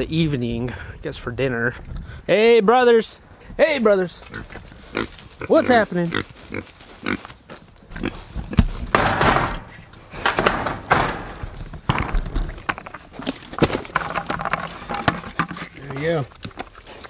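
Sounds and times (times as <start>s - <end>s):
bucket knocking on rails: 8.9s - 12.4s.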